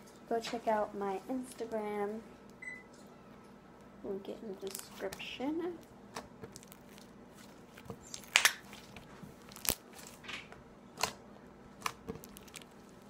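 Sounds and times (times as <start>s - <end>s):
slime clicking and popping: 8.0s - 8.9s, 11.8s - 12.8s.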